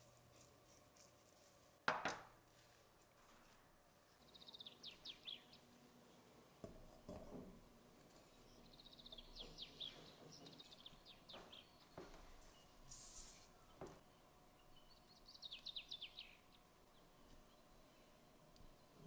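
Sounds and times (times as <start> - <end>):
small bird chirping: 4.2 - 5.6, 8.1 - 13.9, 14.6 - 18.1.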